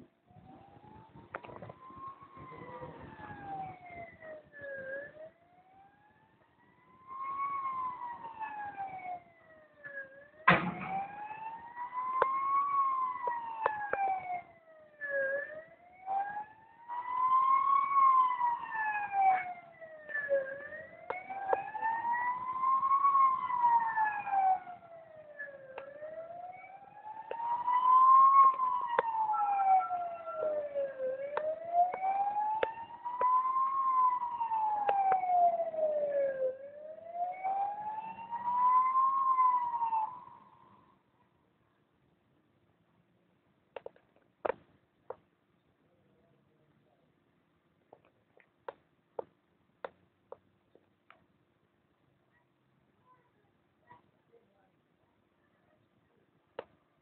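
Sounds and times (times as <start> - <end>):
fire engine siren wailing: 0.0 - 41.1
sharp thump: 10.5 - 11.1.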